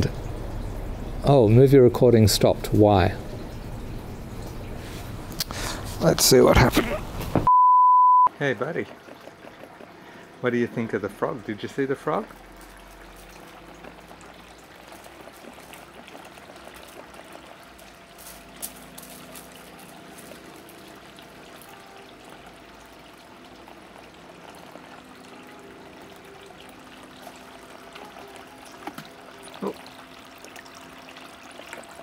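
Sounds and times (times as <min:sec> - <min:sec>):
fountain water trickling: 0:00.0 - 0:07.1, 0:08.4 - 0:32.0.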